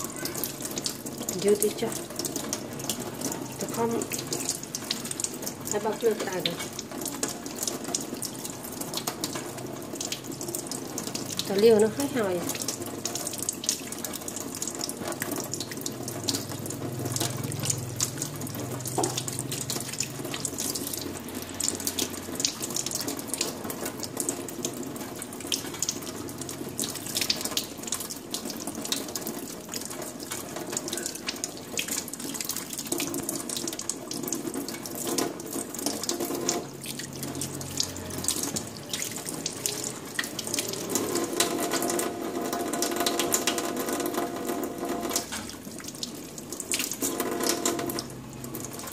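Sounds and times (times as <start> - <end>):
tap running into steel sink: 18.9 - 19.3.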